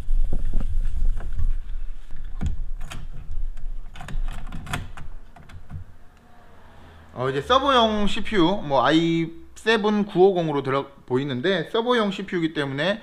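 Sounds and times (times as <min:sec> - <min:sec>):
sharp clicks and knocks: 0:02.3 - 0:06.3.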